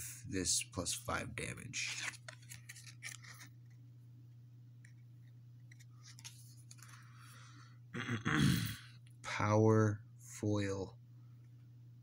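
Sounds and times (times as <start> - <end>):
trading cards rustling: 1.7 - 3.8, 5.6 - 7.3.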